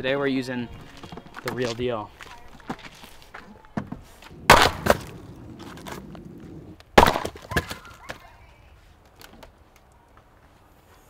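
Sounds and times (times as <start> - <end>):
firewood bundle thudding on dirt: 1.0 - 6.0, 7.0 - 7.9.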